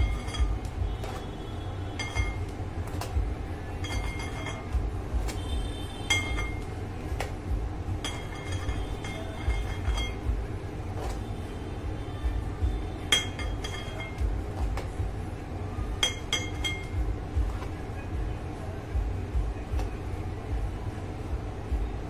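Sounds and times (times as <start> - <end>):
spatula clinking on metal stand: 2.0 - 2.5, 3.8 - 4.8, 6.1 - 6.7, 8.0 - 10.3, 13.1 - 14.2, 16.0 - 17.0.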